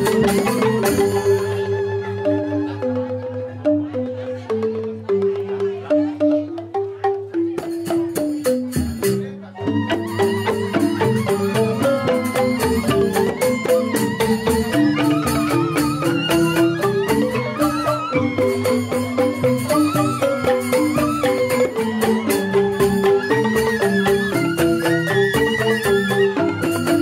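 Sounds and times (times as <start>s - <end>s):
bamboo flute: 0.0s - 27.0s
bamboo xylophones: 0.0s - 27.0s
percussion: 0.0s - 27.0s.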